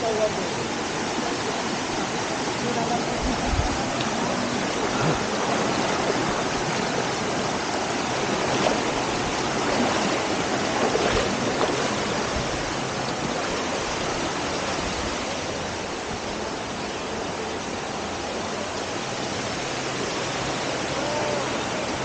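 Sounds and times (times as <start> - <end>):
stream rushing over rocks: 0.0 - 22.0.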